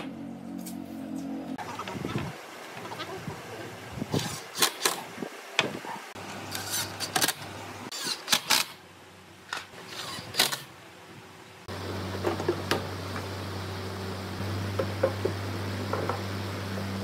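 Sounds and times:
low motor hum: 0.0s - 4.4s, 11.7s - 17.0s.

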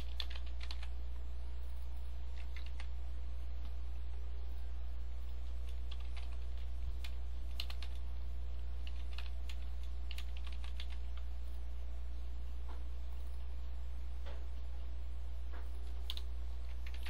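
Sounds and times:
typing on computer keyboard: 0.0s - 1.0s, 2.3s - 2.9s, 5.6s - 8.0s, 8.8s - 11.3s, 15.8s - 17.0s
steady low hum: 0.0s - 17.0s.

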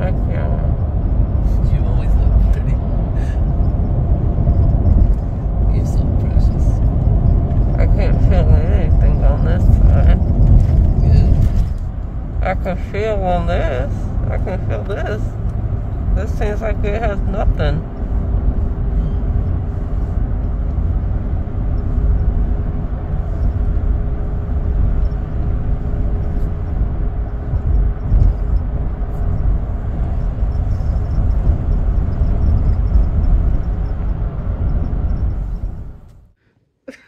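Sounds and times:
car road noise rumble: 0.0s - 36.4s
faint steady hum: 0.0s - 37.0s.

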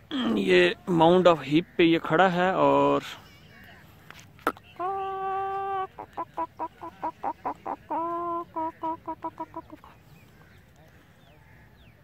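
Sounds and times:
rooster calling and clucking: 4.5s - 9.9s.

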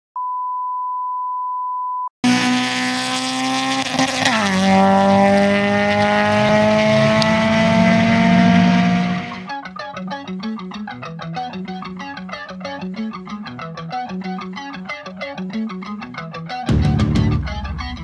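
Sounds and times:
race car engine at high revs: 2.2s - 9.5s.

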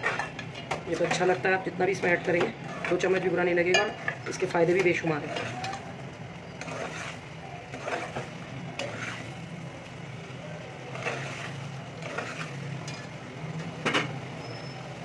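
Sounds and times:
spoon scraping and clinking on pot: 0.0s - 1.4s, 5.2s - 5.8s, 6.6s - 9.3s, 10.9s - 13.1s
spoon stirring thick gravy: 6.6s - 9.4s, 10.8s - 13.0s.

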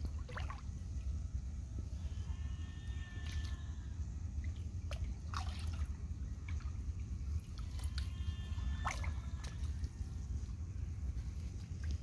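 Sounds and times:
water dripping and splashing: 0.0s - 0.7s, 4.4s - 6.8s.

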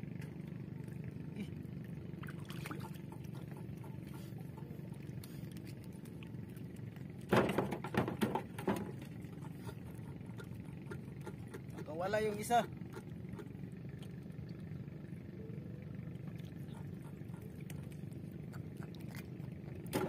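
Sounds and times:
water around a boat: 0.0s - 20.0s
splashing and knocks: 2.2s - 4.2s, 7.2s - 11.9s, 18.8s - 20.0s.

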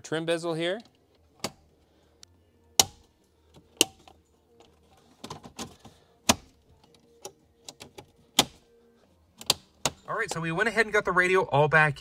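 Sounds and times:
plastic trim clips snapping: 2.8s - 3.1s, 5.3s - 6.5s.

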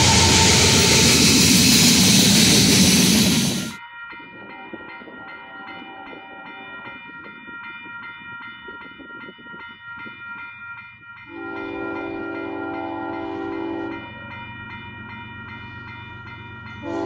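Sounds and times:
crossing bell ringing: 0.0s - 17.0s
train horn: 11.3s - 14.0s, 16.8s - 17.0s.

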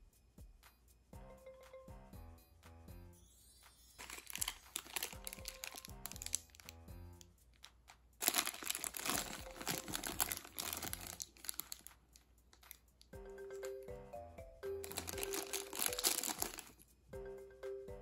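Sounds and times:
soft background music: 0.0s - 18.0s
plastic bag crinkling: 4.0s - 6.8s, 8.2s - 12.9s, 14.8s - 16.8s.

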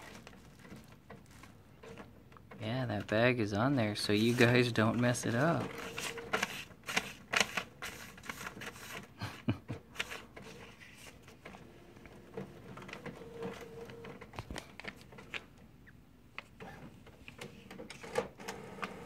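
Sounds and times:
faint printer motor hum: 5.3s - 9.0s, 10.0s - 14.4s, 16.6s - 19.0s.

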